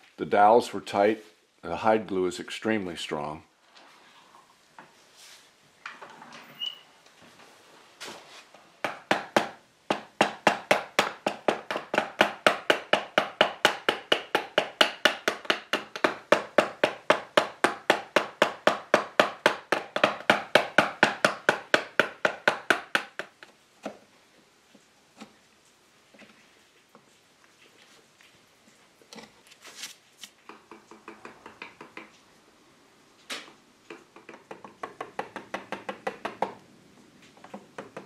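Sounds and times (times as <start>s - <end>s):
hammer tapping steel chisel: 30.5s - 32.2s, 33.9s - 36.6s, 37.4s - 38.0s.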